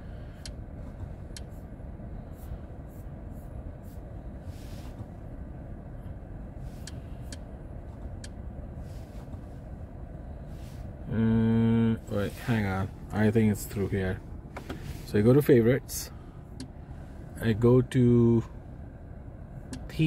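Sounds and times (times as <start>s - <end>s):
car engine idling hum: 0.0s - 20.0s
faint control clicks: 6.8s - 8.4s, 16.5s - 16.8s, 19.6s - 20.0s.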